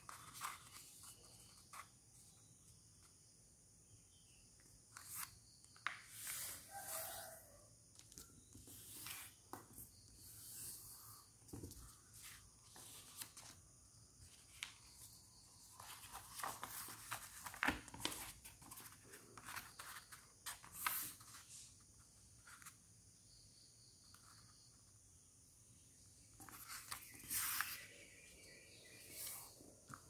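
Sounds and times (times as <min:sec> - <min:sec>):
paper rustling and crinkling: 0:00.0 - 0:01.9, 0:15.7 - 0:21.5.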